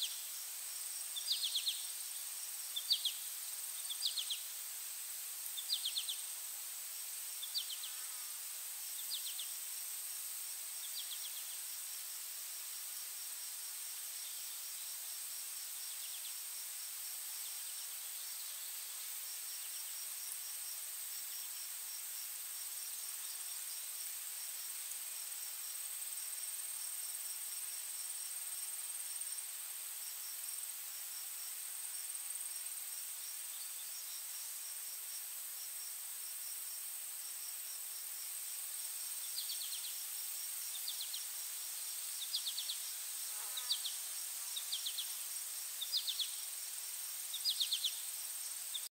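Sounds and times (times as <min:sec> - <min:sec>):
insects high-pitched drone: 0:37.2 - 0:48.8
insects rapid pulsed chirping: 0:38.2 - 0:48.9.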